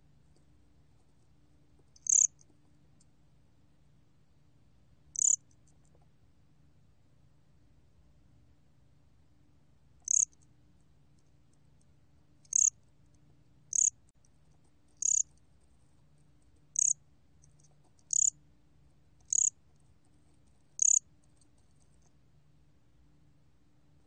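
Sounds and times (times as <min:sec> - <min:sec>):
faint low hum: 0:00.0 - 0:24.0
cricket chirping: 0:01.9 - 0:02.4, 0:05.1 - 0:05.5, 0:10.0 - 0:10.4, 0:12.4 - 0:12.8, 0:13.7 - 0:14.0, 0:15.0 - 0:15.4, 0:16.7 - 0:17.0, 0:18.0 - 0:18.4, 0:19.2 - 0:19.6, 0:20.8 - 0:21.1.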